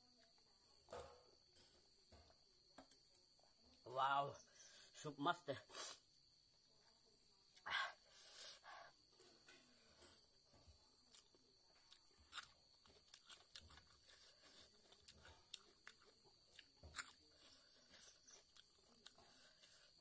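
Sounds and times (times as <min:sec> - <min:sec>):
chewing and crunching: 0:09.1 - 0:20.0.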